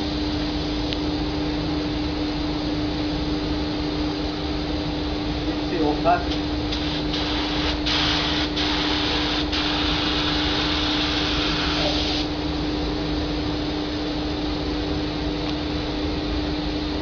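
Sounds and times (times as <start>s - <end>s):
steady machine hum: 0.0s - 17.0s
paint spray gun hissing: 6.7s - 12.3s.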